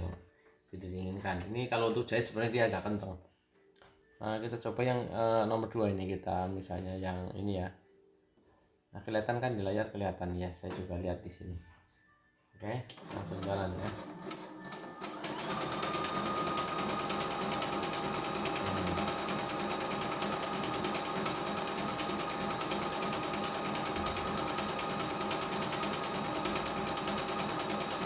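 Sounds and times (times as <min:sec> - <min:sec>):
sewing machine needle ticking: 0:15.3 - 0:28.0.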